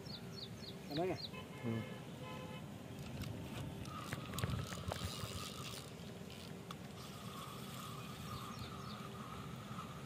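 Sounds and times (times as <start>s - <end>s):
fishing rod handling clicks: 3.0s - 7.9s
fishing reel whirring: 3.8s - 10.0s.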